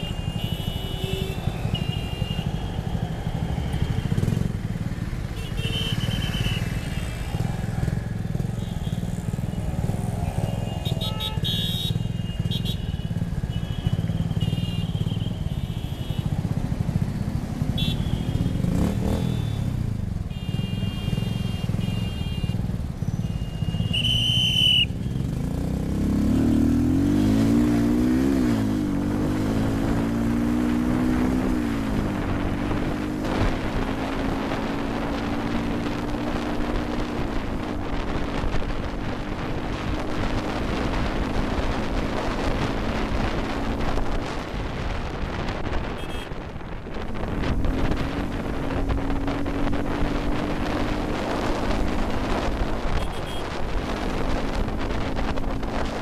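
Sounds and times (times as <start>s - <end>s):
vehicle horns: 0.0s - 2.8s, 5.2s - 7.3s, 8.4s - 16.4s, 17.6s - 25.3s, 45.7s - 46.5s, 52.8s - 53.7s.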